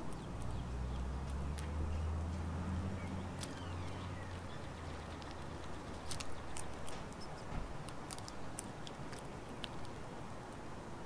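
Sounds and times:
squirrel chewing and cracking seeds: 0.0 - 11.0.

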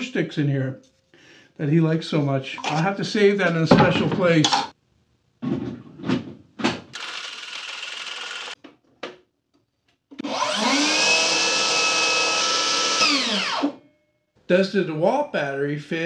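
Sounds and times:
table saw motor whining: 7.0 - 8.6, 10.2 - 13.8.

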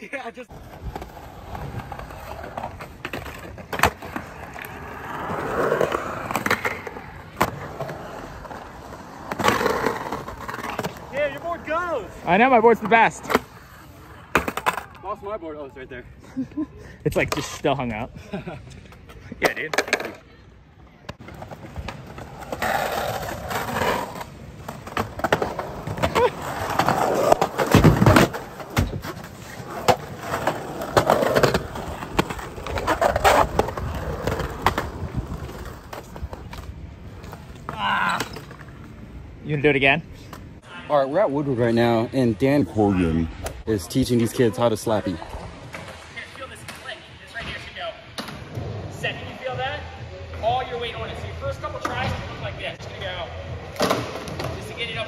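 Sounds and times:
skateboard wheels rolling on concrete: 0.0 - 55.0
skateboard thudding on ground: 24.6 - 29.2.

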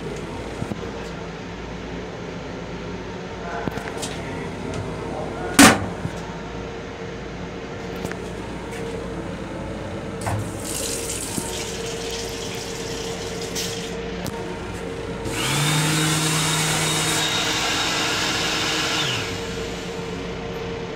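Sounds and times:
water running faintly: 10.2 - 14.0
motor whining: 12.7 - 20.3.

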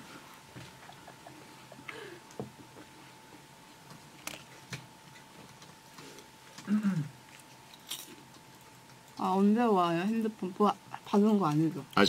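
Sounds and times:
low hum-like vocal sound: 0.0 - 3.2, 6.0 - 7.4.

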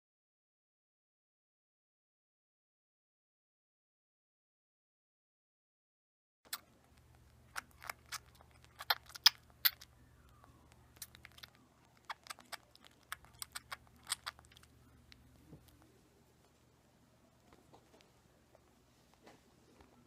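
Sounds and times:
baby squirrel suckling clicks: 6.5 - 15.9
faint low hum: 6.5 - 20.0.

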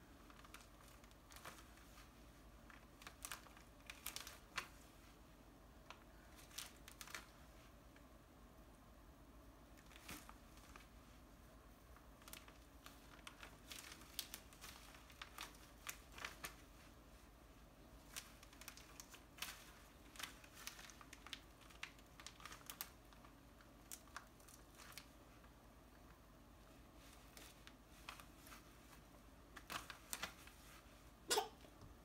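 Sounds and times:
plastic bag crinkling and tapping: 0.2 - 4.9, 5.8 - 7.7, 9.7 - 10.9, 12.0 - 17.0, 18.0 - 26.2, 27.0 - 30.9.

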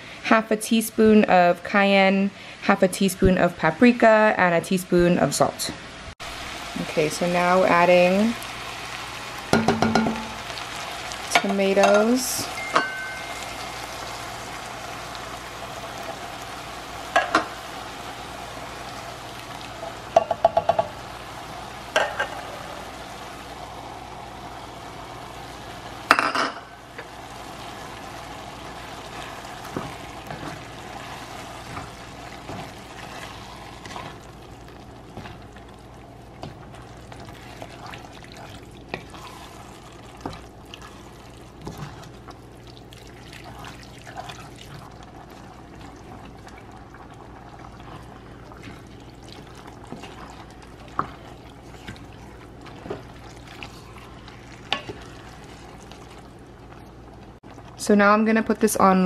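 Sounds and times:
spoon knocking and scraping pot: 9.5 - 10.4, 20.1 - 21.0, 22.0 - 22.4.

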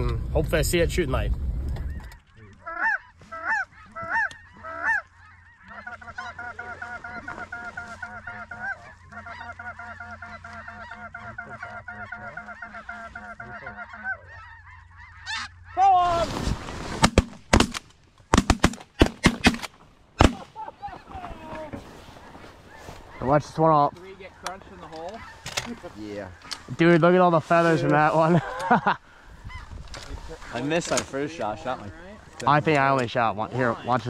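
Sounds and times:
snow geese calling: 1.8 - 17.0, 20.2 - 34.0
shotgun blasts: 17.0 - 20.5.

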